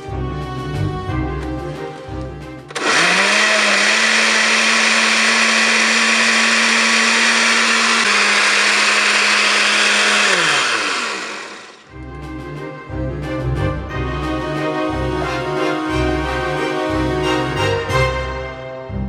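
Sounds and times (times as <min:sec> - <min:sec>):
blender switch click: 0:02.7 - 0:11.8
blender motor running: 0:02.7 - 0:11.9.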